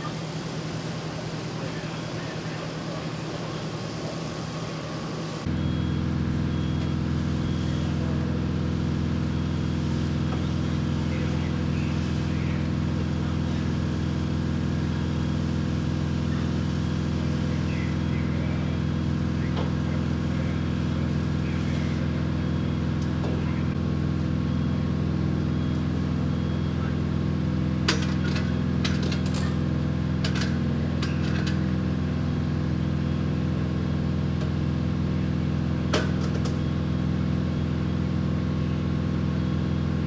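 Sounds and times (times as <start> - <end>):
diesel engine droning: 0.0 - 40.0
faint high beeps: 5.5 - 8.4, 17.4 - 27.0.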